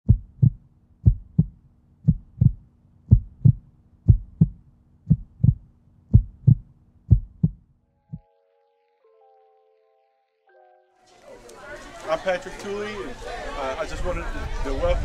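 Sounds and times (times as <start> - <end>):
heartbeat thumps: 0.0 - 8.2.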